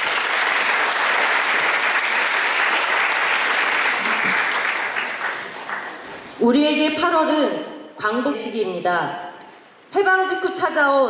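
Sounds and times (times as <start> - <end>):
crowd applauding: 0.0 - 6.2.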